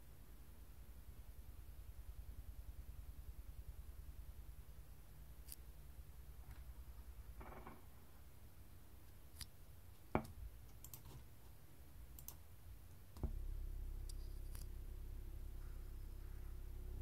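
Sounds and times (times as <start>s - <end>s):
computer mouse clicks: 10.2s - 11.2s, 12.2s - 12.4s
woofer playing low test tone: 13.2s - 17.0s.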